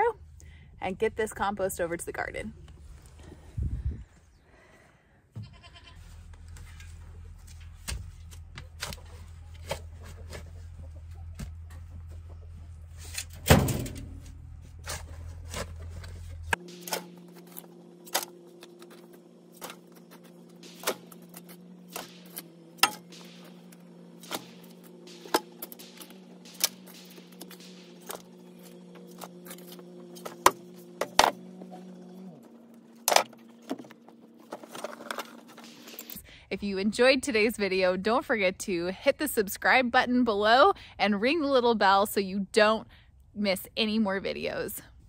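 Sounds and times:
goat bleat: 0:05.4 - 0:06.0
steady low hum: 0:06.1 - 0:38.9
shovel scraping and knocking: 0:33.1 - 0:36.2.

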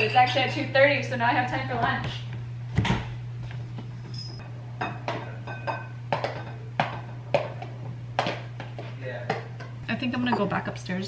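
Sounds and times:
glass and ceramic clinking: 0:00.0 - 0:00.5, 0:04.0 - 0:07.2, 0:09.6 - 0:10.7.

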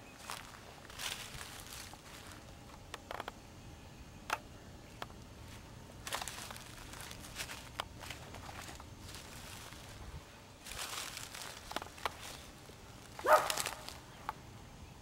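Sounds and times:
footsteps on dry leaves: 0:00.1 - 0:02.7, 0:05.4 - 0:14.2.

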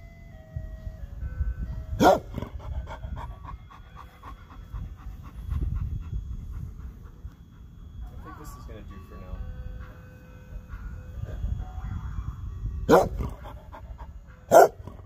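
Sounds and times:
dog barking: 0:02.0 - 0:02.5, 0:12.9 - 0:13.8, 0:14.5 - 0:15.0
dog panting: 0:02.0 - 0:11.4, 0:12.9 - 0:15.0.

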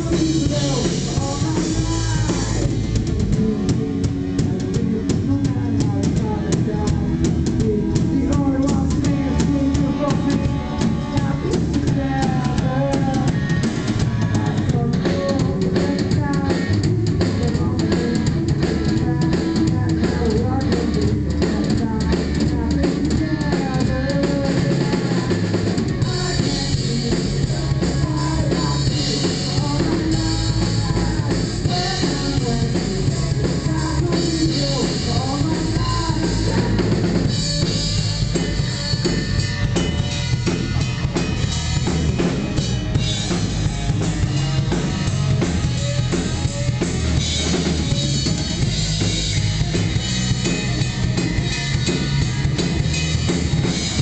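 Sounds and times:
drum kit: 0:00.0 - 0:54.0
electric bass: 0:00.0 - 0:54.0
electric guitar: 0:00.0 - 0:54.0.

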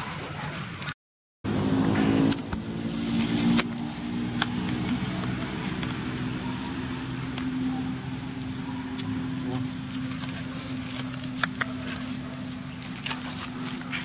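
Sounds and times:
engine hum: 0:01.4 - 0:14.0.

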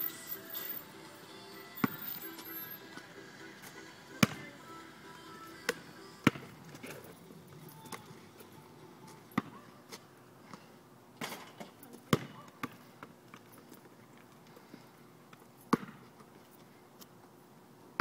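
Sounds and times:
faint background music: 0:00.0 - 0:10.4
basketball bouncing on pavement: 0:01.7 - 0:02.1, 0:04.2 - 0:04.6, 0:05.6 - 0:08.5, 0:09.1 - 0:09.6, 0:11.2 - 0:13.4, 0:15.7 - 0:16.3.

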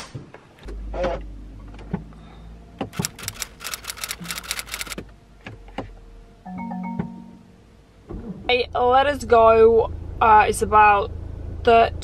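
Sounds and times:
car starter clicking: 0:02.8 - 0:05.0.

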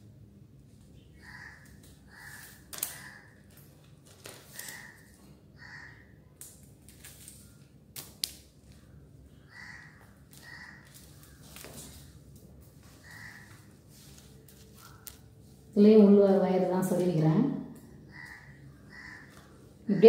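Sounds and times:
plastic wire rustling: 0:01.8 - 0:05.2, 0:06.4 - 0:09.0, 0:10.3 - 0:15.7.

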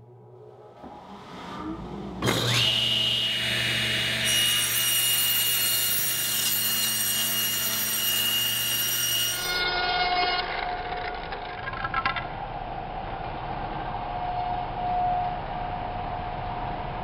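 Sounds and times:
table saw whining: 0:00.3 - 0:11.6
saw cutting wooden board: 0:01.1 - 0:10.9.

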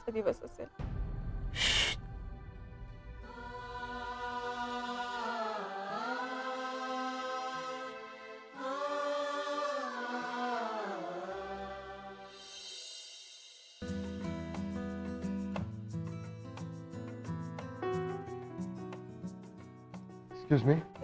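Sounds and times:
chant-like sung vocal: 0:00.0 - 0:13.6.

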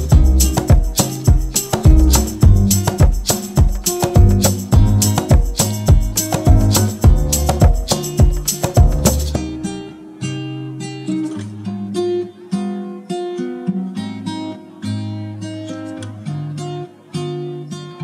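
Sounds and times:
loud percussion: 0:00.0 - 0:09.6
acoustic guitar music: 0:00.0 - 0:18.0.

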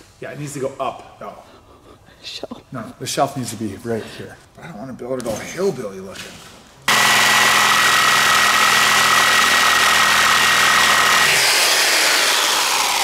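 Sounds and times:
electric power tool whirring: 0:06.9 - 0:13.0.

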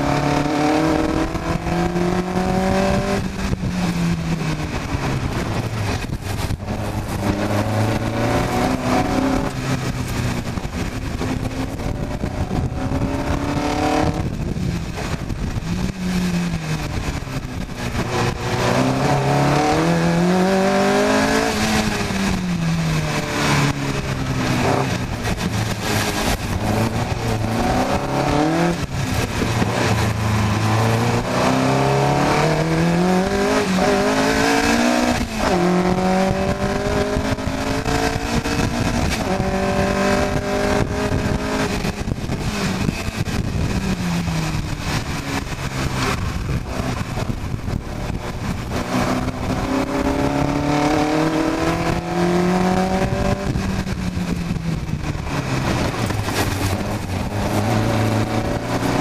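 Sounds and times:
race car engine accelerating: 0:00.0 - 0:59.0
wind rushing over microphone: 0:00.0 - 0:59.0.

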